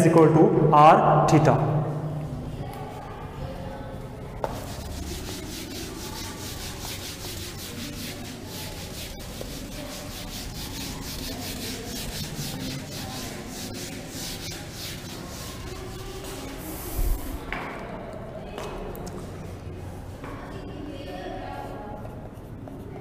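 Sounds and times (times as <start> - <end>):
eraser rubbing on whiteboard: 4.4 - 17.5.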